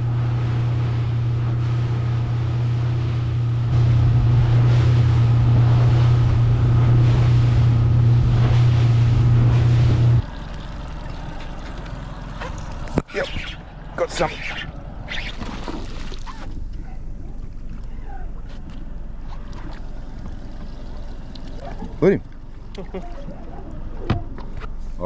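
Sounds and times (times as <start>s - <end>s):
wind buffeting microphone: 0.0s - 10.3s
outboard motor running: 0.0s - 25.0s
water noise: 0.0s - 25.0s.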